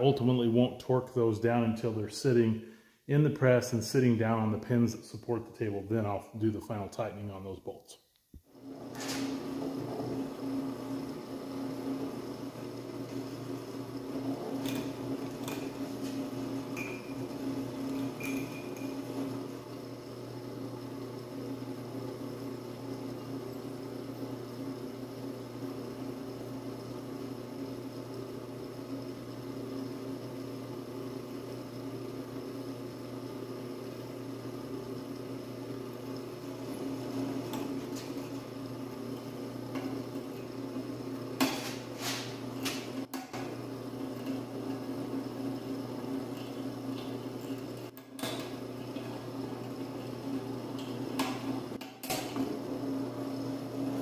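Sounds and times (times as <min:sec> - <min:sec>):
drill press motor hum: 0:08.5 - 0:54.0.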